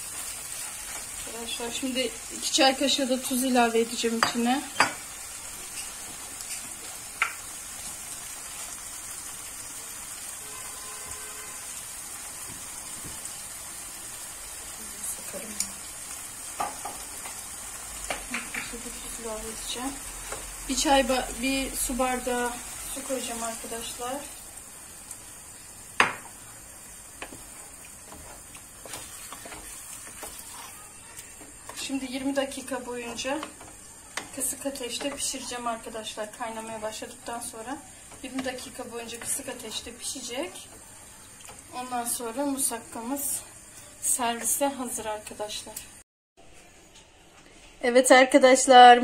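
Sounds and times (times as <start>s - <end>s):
stew sizzling in a pot: 0.0s - 46.0s
wooden spoon tapping a pan: 4.1s - 5.0s, 7.2s - 7.4s, 16.6s - 17.4s, 18.0s - 18.9s, 26.0s - 26.4s, 27.2s - 30.4s, 33.0s - 35.4s, 38.1s - 39.9s.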